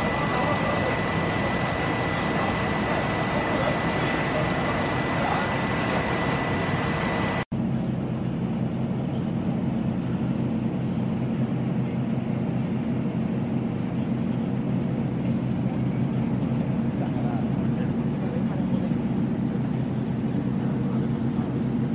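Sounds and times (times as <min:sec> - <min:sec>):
low engine hum: 0:00.0 - 0:21.9.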